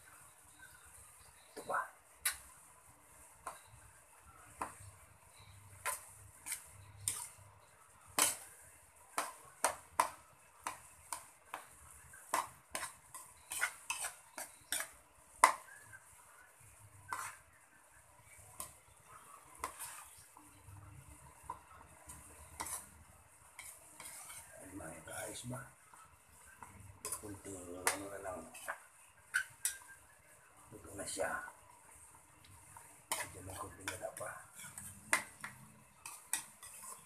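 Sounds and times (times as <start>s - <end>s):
metal spatula scraping a wok: 5.3s - 9.4s, 10.6s - 17.6s, 18.2s - 25.4s, 26.3s - 30.0s, 31.4s - 37.0s.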